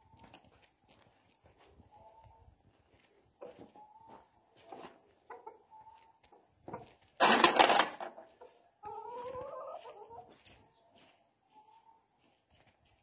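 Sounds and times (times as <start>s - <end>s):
chickens clucking: 1.3s - 12.2s
drawn-out rising chicken call: 8.4s - 10.7s.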